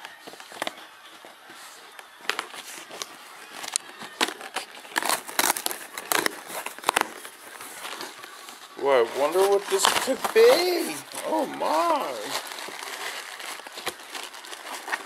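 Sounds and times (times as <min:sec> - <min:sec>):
cardboard box being torn open: 0:02.3 - 0:08.2, 0:09.1 - 0:15.0.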